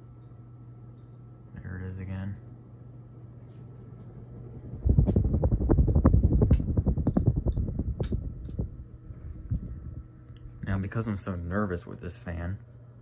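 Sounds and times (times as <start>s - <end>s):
ceiling fan motor hum: 0.0s - 13.0s
wind rumble on microphone: 4.5s - 10.9s.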